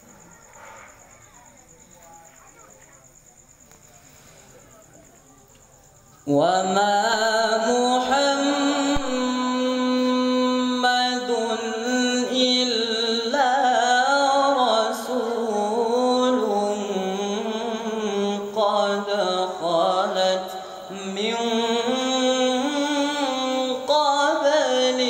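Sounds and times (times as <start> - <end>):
male voice reciting melodically: 6.2 - 25.0.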